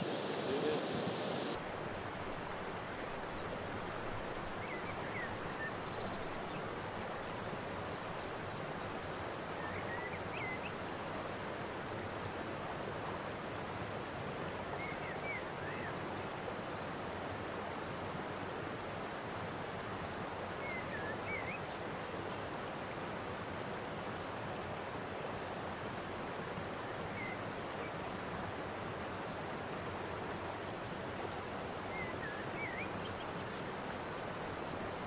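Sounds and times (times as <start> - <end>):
faint bird chirps: 0.0 - 1.6
outdoor background rush: 0.0 - 4.6.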